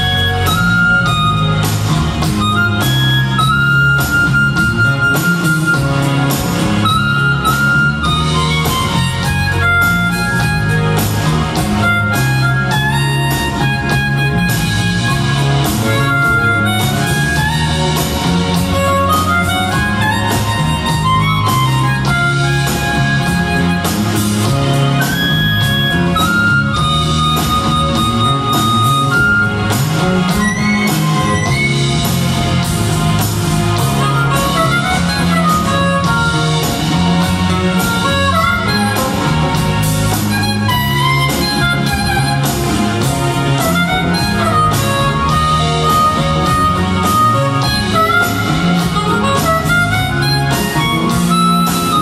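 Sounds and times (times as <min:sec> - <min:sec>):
harmonica melody: 0:00.0 - 0:52.0
live band music: 0:00.0 - 0:52.0.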